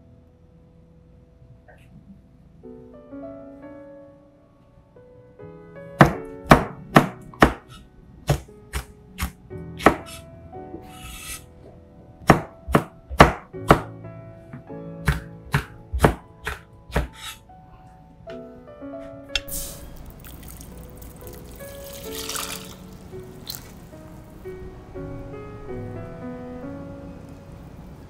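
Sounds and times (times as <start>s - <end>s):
knife chopping on cutting board: 6.0s - 10.2s, 12.2s - 13.9s, 15.0s - 17.4s.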